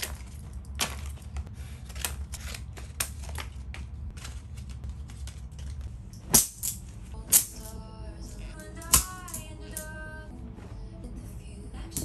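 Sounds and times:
low steady hum: 0.0s - 12.0s
plastic hangers clacking: 8.6s - 10.0s.

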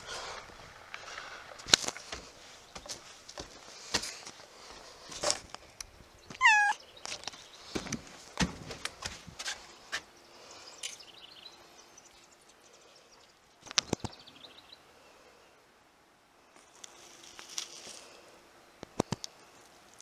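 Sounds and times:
bird chirps: 6.1s - 7.7s.

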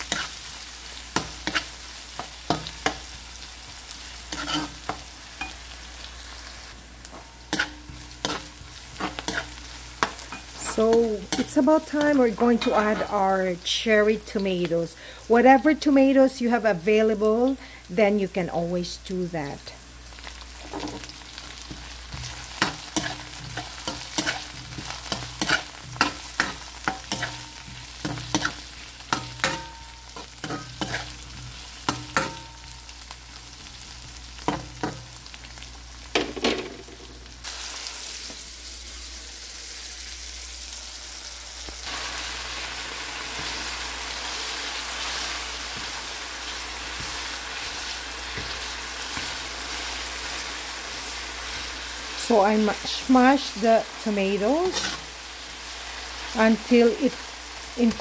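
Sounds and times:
utensil scraping wok: 0.0s - 13.4s, 20.6s - 35.2s, 41.8s - 57.2s
vegetables sizzling in oil: 0.0s - 58.0s.

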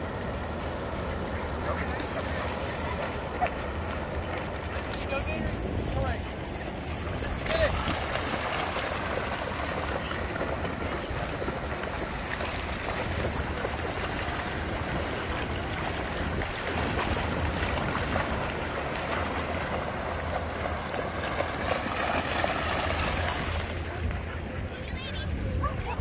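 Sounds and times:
dogs splashing in water: 0.0s - 24.6s
wind noise on microphone: 9.8s - 19.8s.

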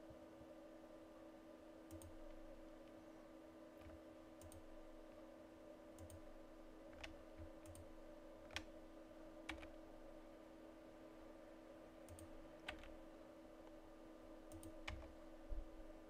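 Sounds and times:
faint steady hum: 0.0s - 16.0s
computer mouse clicks: 1.9s - 3.0s, 3.8s - 4.7s, 6.0s - 6.3s, 6.9s - 8.8s, 9.4s - 9.8s, 12.1s - 13.0s, 14.5s - 15.2s.

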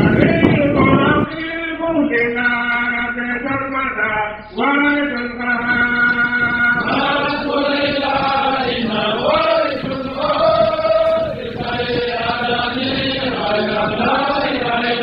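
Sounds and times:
slow devotional chanting: 4.4s - 15.0s.

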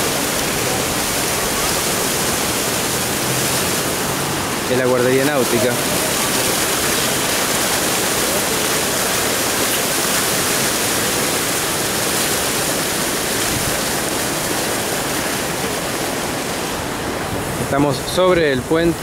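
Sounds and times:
creek rushing: 0.0s - 19.0s.

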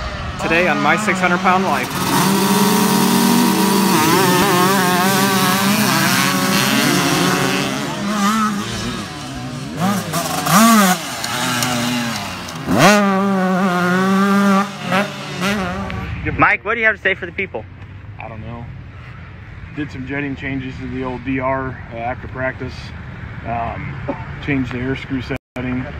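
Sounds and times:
motocross bike engine revving: 0.0s - 16.2s.

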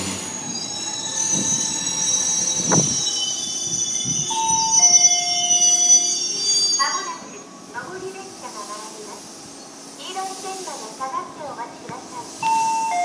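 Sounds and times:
wheels and brakes squealing: 0.0s - 7.5s
electric train arriving: 0.0s - 13.0s.

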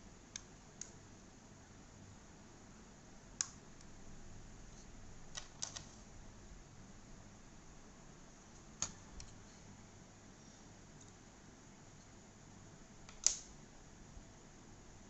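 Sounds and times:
small plastic clicks and taps: 13.1s - 13.5s.

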